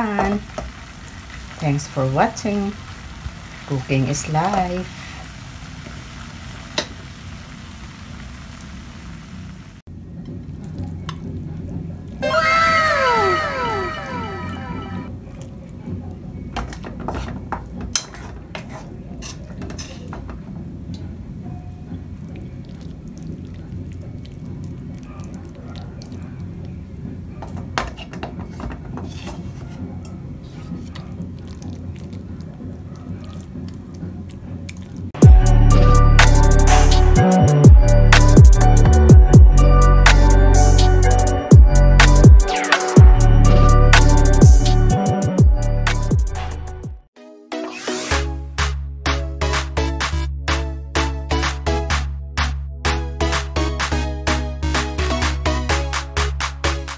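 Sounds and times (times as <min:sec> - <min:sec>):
caramel sizzling in a pan: 0:00.0 - 0:09.9
electronic music with bass sweep: 0:12.9 - 0:15.1, 0:35.2 - 0:47.1, 0:47.9 - 0:56.9
sticky wet squishing: 0:30.4 - 0:35.1.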